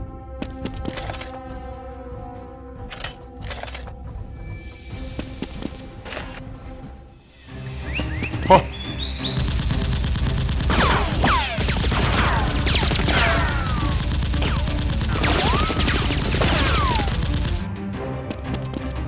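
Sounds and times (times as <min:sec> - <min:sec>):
automatic gunfire: 0:09.4 - 0:17.6.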